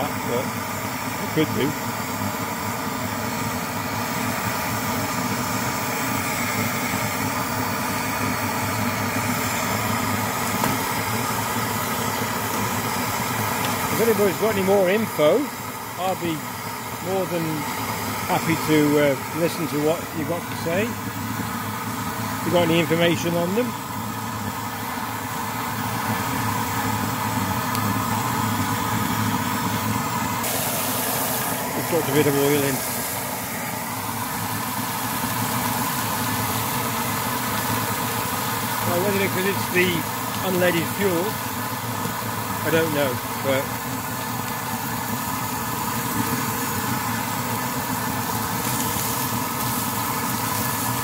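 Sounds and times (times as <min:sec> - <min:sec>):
pressure stove burner rushing: 0:00.0 - 0:51.0
steaks sizzling in pan: 0:30.4 - 0:42.6, 0:43.2 - 0:51.0.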